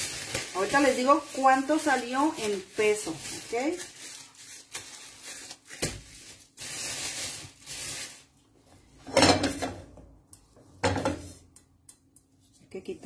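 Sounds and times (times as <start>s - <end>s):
plastic bag rustling: 0.0s - 8.6s.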